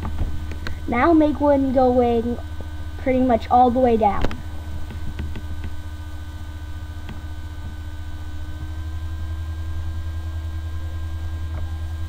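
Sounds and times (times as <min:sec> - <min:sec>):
electrical mains hum: 0:00.0 - 0:12.0
faint steady tones: 0:00.0 - 0:12.0.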